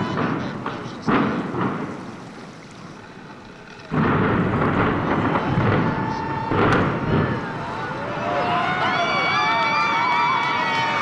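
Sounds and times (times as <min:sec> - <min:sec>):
distant demolition blast: 0:00.0 - 0:02.6, 0:03.8 - 0:08.4.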